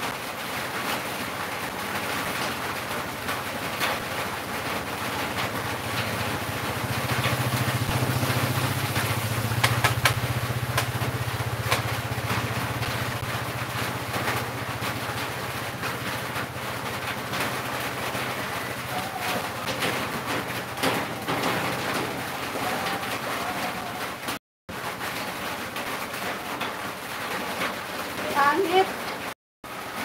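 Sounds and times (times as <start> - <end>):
engine running: 2.4 - 24.4.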